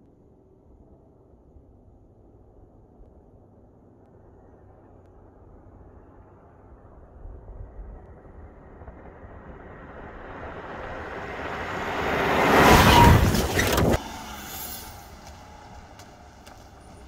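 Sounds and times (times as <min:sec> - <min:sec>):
outdoor ambience: 0:00.0 - 0:17.0.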